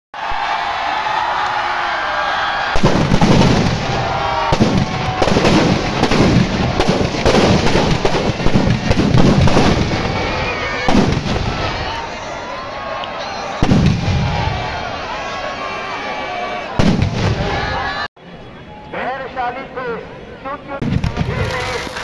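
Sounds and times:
firecrackers banging and crackling: 0:02.7 - 0:12.0, 0:13.6 - 0:14.6, 0:16.8 - 0:17.5, 0:20.8 - 0:22.0.

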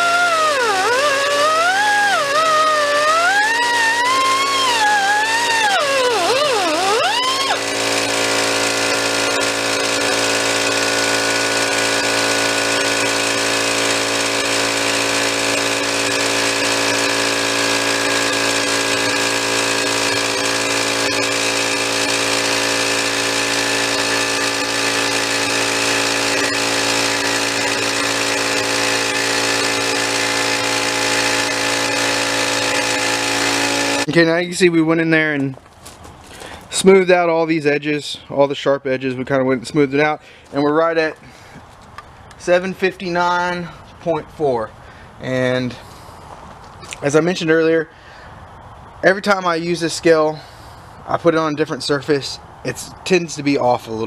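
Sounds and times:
air compressor humming: 0:00.0 - 0:34.3, 0:40.2 - 0:49.3
wavering whine: 0:00.0 - 0:34.7.

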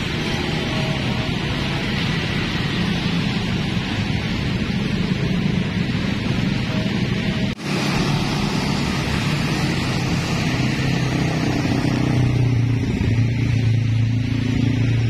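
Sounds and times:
cars and motorcycles passing: 0:00.0 - 0:15.0.

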